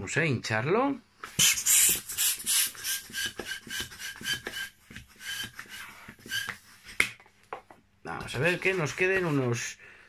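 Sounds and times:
hand pump inflating balloon: 1.3s - 7.0s.

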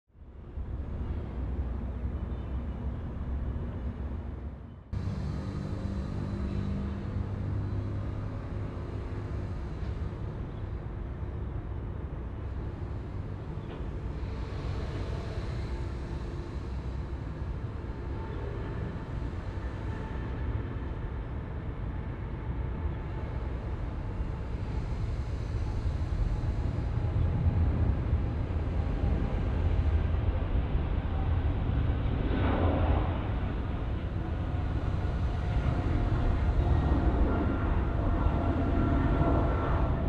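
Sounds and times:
jet engines rumbling: 22.5s - 40.0s.

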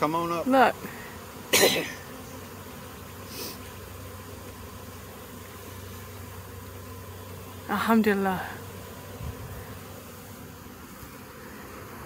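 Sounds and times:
bee swarm buzzing: 0.0s - 12.0s
person coughing: 1.5s - 2.0s.

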